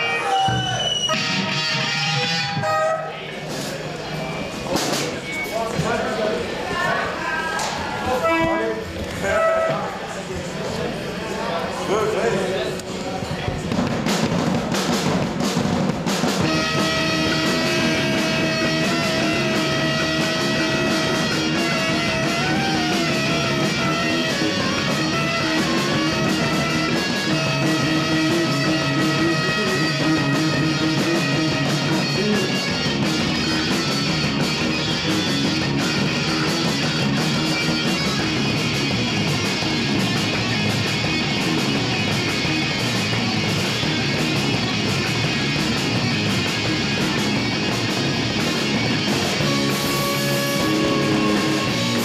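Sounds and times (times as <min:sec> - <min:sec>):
saxophone melody: 0:00.0 - 0:03.2, 0:08.2 - 0:09.9, 0:16.4 - 0:34.0, 0:49.4 - 0:52.0
rock band playing: 0:00.0 - 0:05.5, 0:13.7 - 0:52.0.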